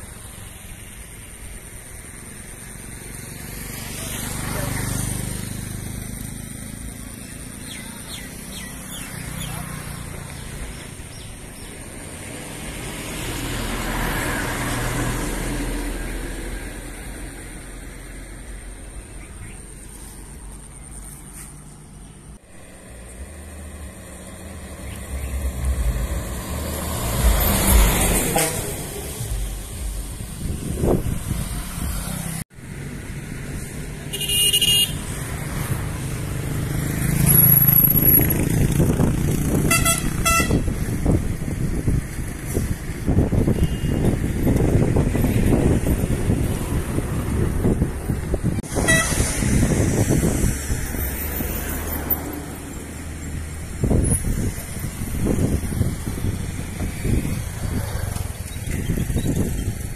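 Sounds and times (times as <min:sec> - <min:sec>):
road traffic engines: 0:00.0 - 0:59.9
vehicle passing by: 0:02.0 - 0:34.1, 0:35.0 - 0:43.5, 0:44.1 - 0:59.9
vehicle horn honking: 0:28.2 - 0:29.0, 0:34.1 - 0:35.0, 0:39.6 - 0:40.7, 0:43.6 - 0:44.1, 0:48.7 - 0:49.3.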